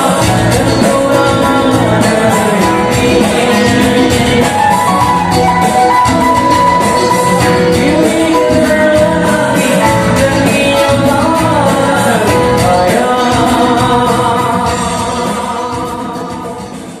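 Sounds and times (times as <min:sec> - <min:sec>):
acoustic guitar: 0:00.0 - 0:17.0
electric guitar: 0:00.0 - 0:17.0
keyboard: 0:00.0 - 0:17.0
man singing: 0:00.0 - 0:17.0
flute: 0:04.6 - 0:07.8.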